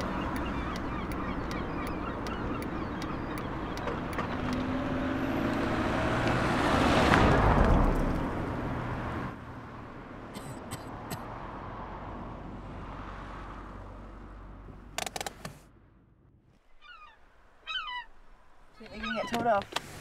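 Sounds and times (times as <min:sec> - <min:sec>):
street background noise: 0:00.0 - 0:20.0
car driving by: 0:03.6 - 0:09.3.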